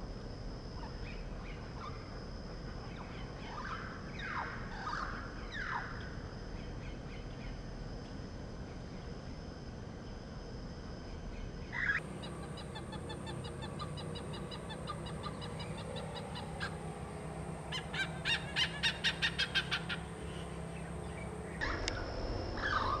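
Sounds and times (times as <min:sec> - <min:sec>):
hornbill honking calls: 0:12.0 - 0:21.8.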